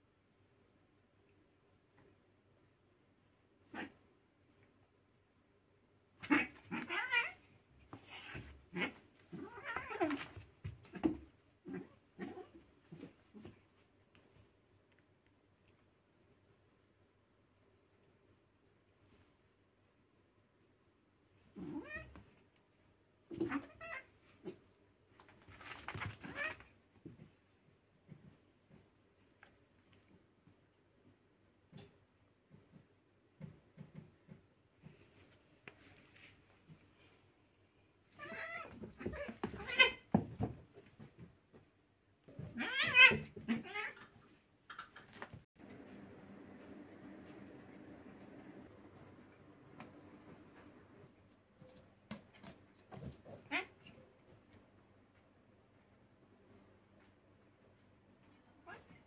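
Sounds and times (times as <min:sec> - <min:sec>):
cat yowling: 0:42.4 - 0:44.0.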